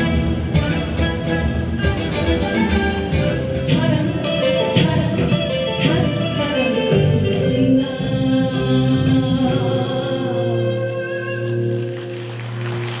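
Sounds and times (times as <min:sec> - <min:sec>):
bowed string instrument: 0:00.0 - 0:13.0
flute: 0:00.0 - 0:13.0
violin: 0:00.0 - 0:13.0
woman singing: 0:03.2 - 0:11.6.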